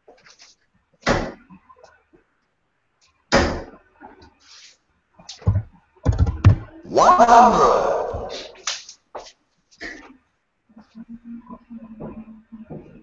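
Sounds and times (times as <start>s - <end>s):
darts thudding into dartboard: 1.0s - 1.4s, 3.3s - 3.8s.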